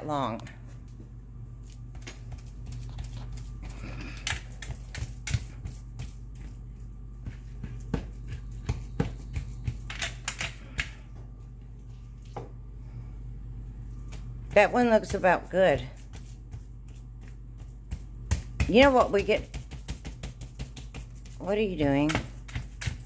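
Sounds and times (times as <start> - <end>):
hands patting meat in metal pan: 14.0 - 23.0.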